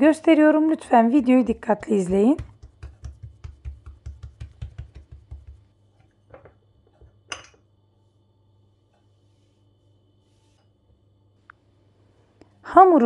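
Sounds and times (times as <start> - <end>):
fingertips patting dough: 1.2 - 6.2.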